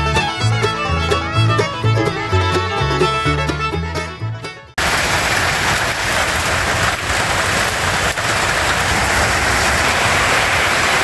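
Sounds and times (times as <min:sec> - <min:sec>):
rain falling: 0:04.8 - 0:11.0.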